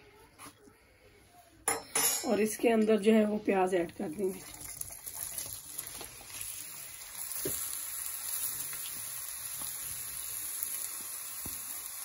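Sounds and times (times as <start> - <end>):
onions sizzling in hot oil: 4.1 - 12.0.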